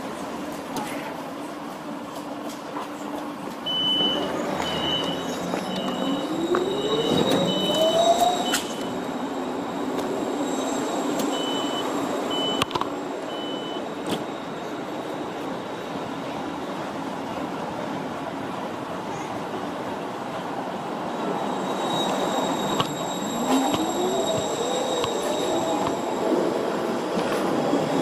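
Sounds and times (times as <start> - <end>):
tram warning beeps: 3.4 - 17.5, 20.7 - 28.0.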